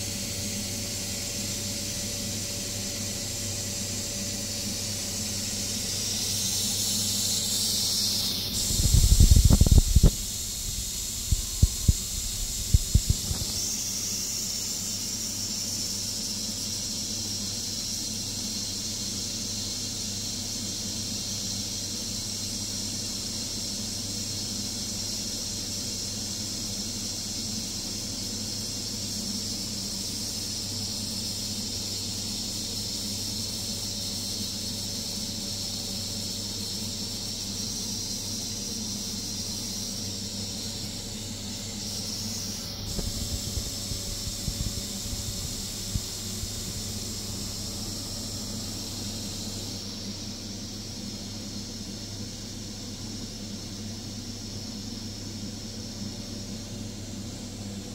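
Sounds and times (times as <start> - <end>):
multi-cooker steam hissing: 0.0 - 57.9.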